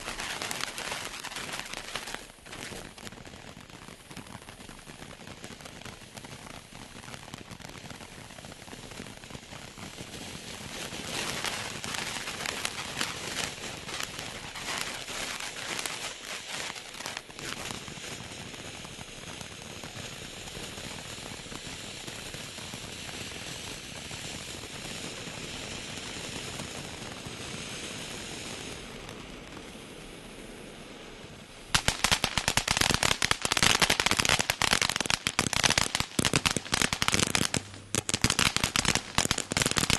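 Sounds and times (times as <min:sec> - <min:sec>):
firework hissing and crackling: 0:00.0 - 0:39.9.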